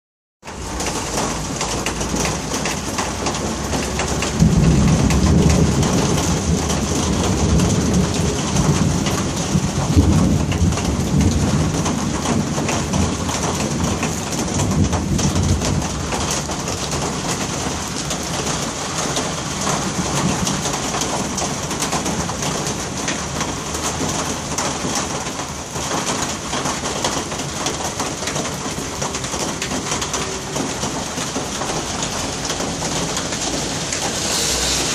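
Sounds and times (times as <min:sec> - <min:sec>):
rolling thunder: 0:00.6 - 0:34.9
heavy rain hissing: 0:28.6 - 0:34.9.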